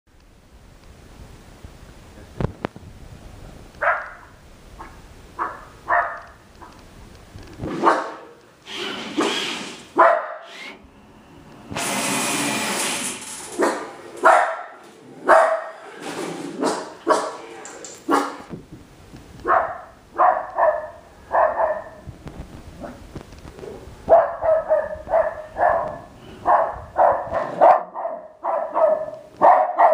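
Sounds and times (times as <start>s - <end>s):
dog barking: 3.8s - 6.4s, 7.8s - 8.4s, 10.0s - 10.5s, 13.6s - 15.8s, 16.6s - 17.4s, 18.1s - 18.4s, 19.4s - 22.0s, 22.8s - 23.0s, 23.7s - 29.9s
loud rushing hiss: 7.7s - 14.1s.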